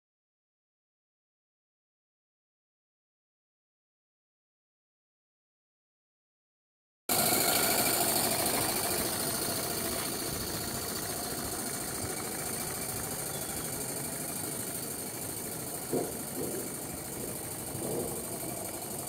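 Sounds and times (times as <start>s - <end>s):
steam engine running: 7.1s - 19.0s.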